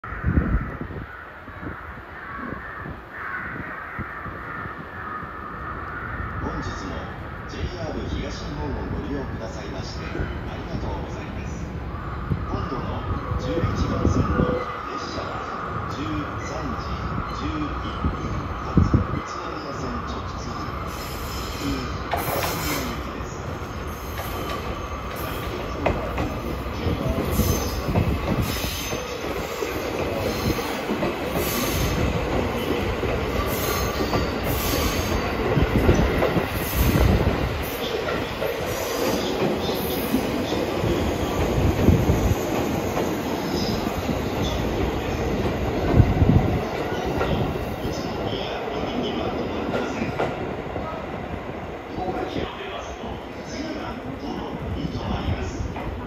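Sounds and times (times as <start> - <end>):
train wheels squealing: 16.4 - 48.4
train running gear rumble: 22.0 - 51.0.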